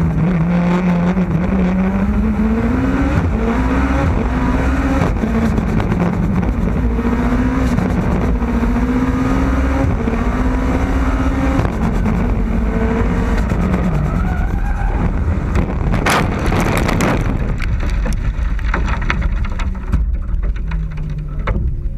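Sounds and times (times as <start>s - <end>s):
race car engine revving: 0.0s - 17.9s
car crash impacts: 14.9s - 21.9s
dirt and debris clattering: 15.8s - 21.9s.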